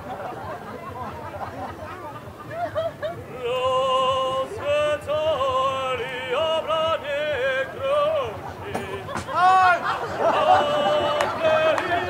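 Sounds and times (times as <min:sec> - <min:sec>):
crowd murmur: 0:00.0 - 0:12.0
operatic singing with vibrato: 0:03.0 - 0:12.0.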